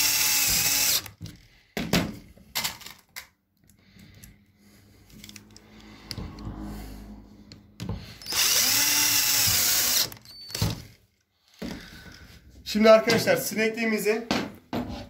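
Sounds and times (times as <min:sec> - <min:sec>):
drill motor whine: 0:00.0 - 0:01.1, 0:08.2 - 0:10.8.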